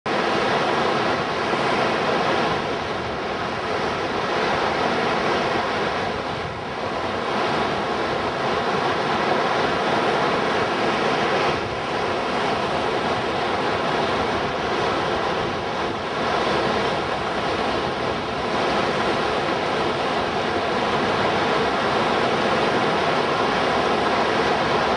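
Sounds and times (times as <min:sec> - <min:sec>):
whitewater rushing: 0:00.1 - 0:24.9.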